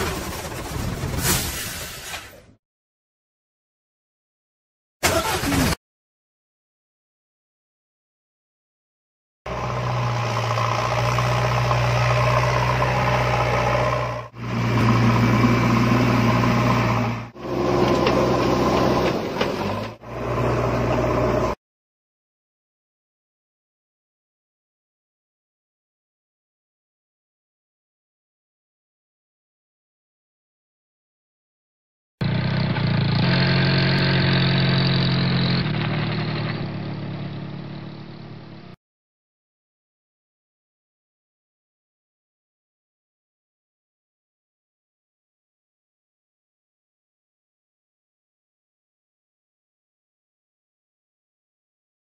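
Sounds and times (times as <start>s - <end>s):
car engine running: 32.2s - 38.8s.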